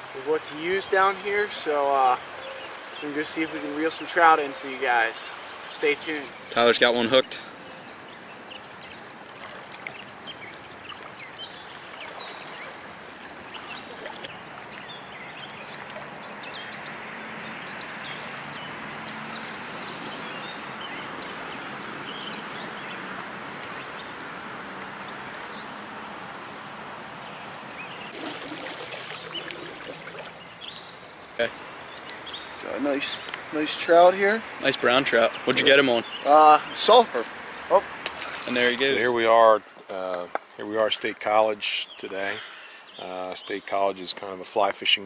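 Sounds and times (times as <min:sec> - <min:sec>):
creek water rushing: 0:00.0 - 0:40.0
fish splashing at surface: 0:28.1 - 0:30.5, 0:38.0 - 0:38.6.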